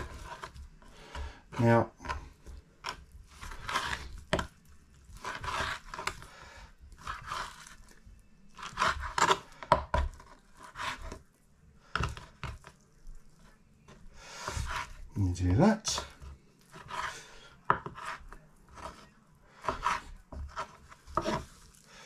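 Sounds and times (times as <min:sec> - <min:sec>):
knife slicing meat: 0:02.8 - 0:06.3, 0:08.6 - 0:11.2.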